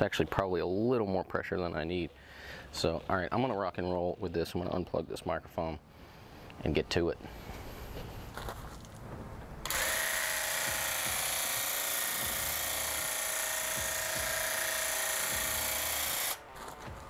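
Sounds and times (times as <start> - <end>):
paint sprayer whine: 9.6 - 17.0.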